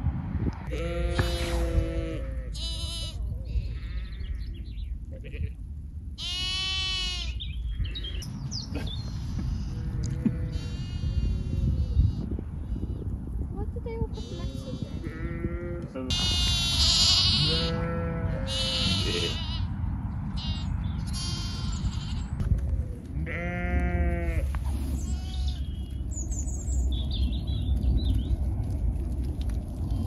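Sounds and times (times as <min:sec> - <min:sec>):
sheep and lambs bleating: 0:00.7 - 0:05.6, 0:06.2 - 0:08.2, 0:09.0 - 0:12.3, 0:14.2 - 0:22.4, 0:23.1 - 0:25.8.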